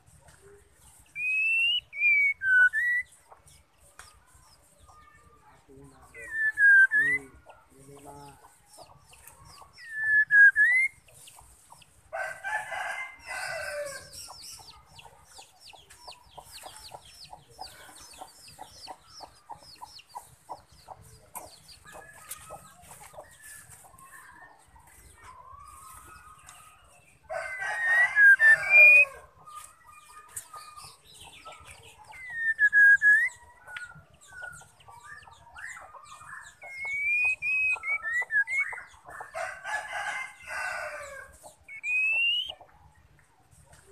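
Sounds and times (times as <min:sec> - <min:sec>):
faint bird chattering and ticking: 0:00.0 - 0:43.9
bird whistling calls: 0:01.2 - 0:03.2, 0:06.2 - 0:07.3, 0:09.8 - 0:11.0, 0:32.0 - 0:33.9, 0:36.6 - 0:38.9, 0:41.7 - 0:42.6.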